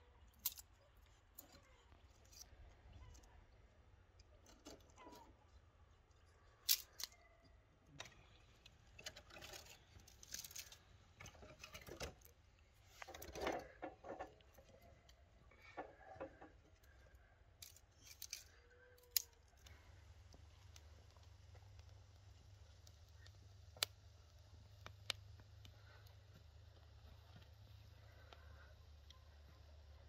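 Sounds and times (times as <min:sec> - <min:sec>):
twigs snapping and rustling: 0:17.6 - 0:25.9.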